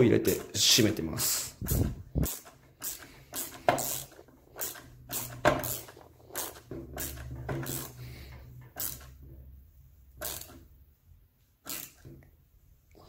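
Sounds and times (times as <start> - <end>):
screw creaking into plastic: 1.6 - 9.2, 10.2 - 10.6, 11.6 - 12.1.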